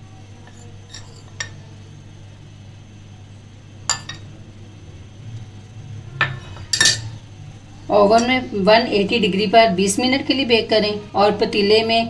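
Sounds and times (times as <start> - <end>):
low steady hum: 0.0 - 12.0
metal spoon clinking bowl: 0.4 - 1.6, 3.9 - 4.3, 6.2 - 7.2.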